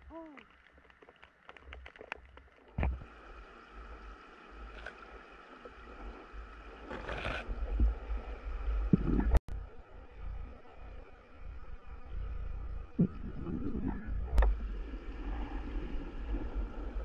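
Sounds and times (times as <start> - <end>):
muffled underwater rumble: 2.7 - 17.0
rush of water: 2.8 - 9.4.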